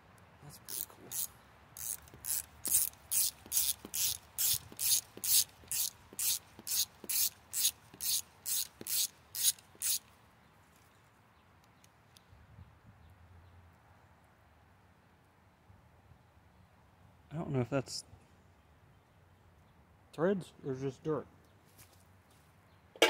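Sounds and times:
ratchet wrench clicking: 0.7s - 10.0s.

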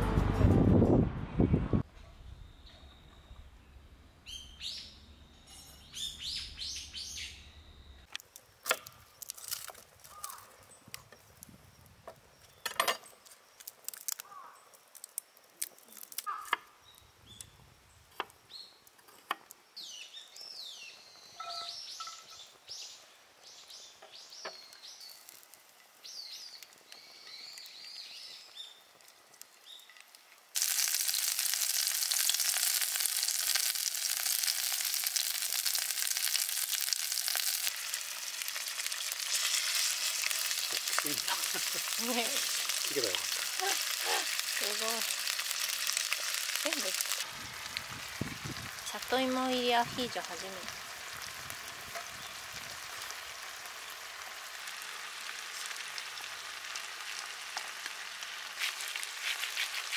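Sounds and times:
birds chirping: 2.1s - 8.1s, 19.8s - 25.3s
food sizzling in hot oil: 13.4s - 16.5s, 23.8s - 59.9s.

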